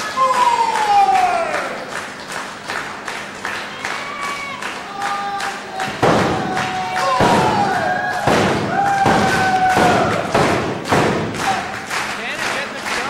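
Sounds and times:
spectators shouting: 0:00.0 - 0:01.9, 0:03.6 - 0:11.9
loud sharp thuds: 0:05.9 - 0:11.8.

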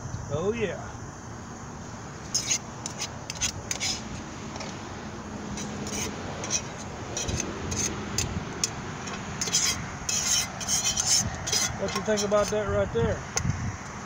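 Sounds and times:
fork scraping metal pan: 0:02.3 - 0:04.8, 0:05.5 - 0:12.6.

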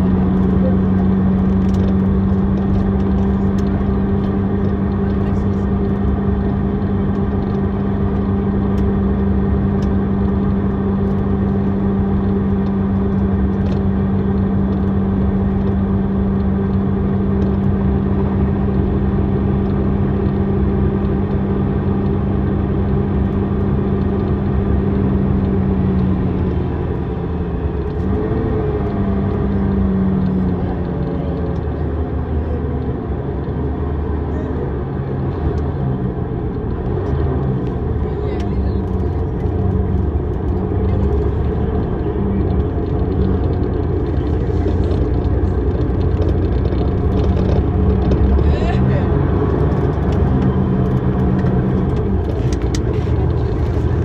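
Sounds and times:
diesel bus engine droning: 0:00.0 - 0:54.0.

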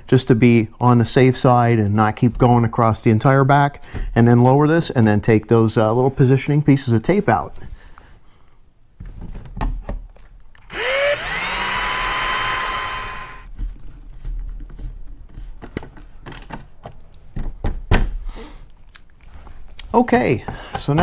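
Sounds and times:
cordless drill whining: 0:10.7 - 0:13.5.

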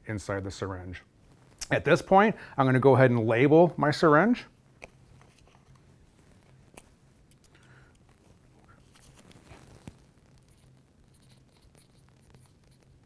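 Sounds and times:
low steady hum: 0:00.0 - 0:13.0
pen scratching on paper: 0:10.5 - 0:13.0.

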